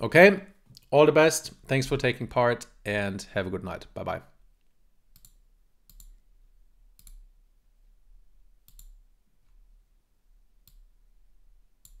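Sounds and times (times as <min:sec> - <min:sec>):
computer mouse clicks: 0:05.1 - 0:06.2, 0:07.0 - 0:07.3, 0:08.6 - 0:09.0, 0:10.6 - 0:10.9, 0:11.8 - 0:12.0.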